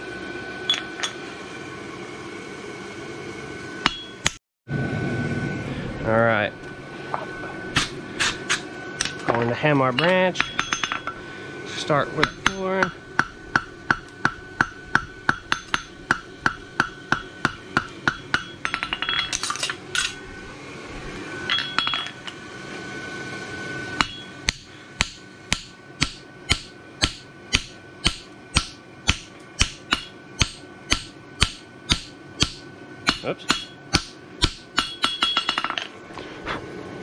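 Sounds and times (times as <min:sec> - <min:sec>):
hammer blows ringing on hot steel: 0:03.8 - 0:04.4, 0:09.9 - 0:11.2, 0:11.8 - 0:19.4, 0:23.9 - 0:35.8.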